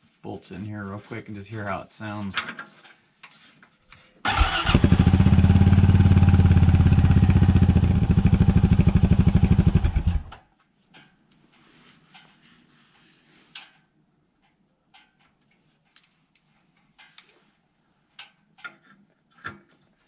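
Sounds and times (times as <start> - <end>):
engine starting and idling: 4.3 - 10.4
faint clicks: 13.5 - 17.5.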